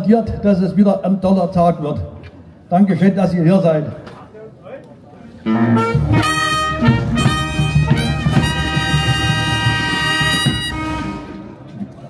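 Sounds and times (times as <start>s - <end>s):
brass band fanfare: 5.5s - 11.6s.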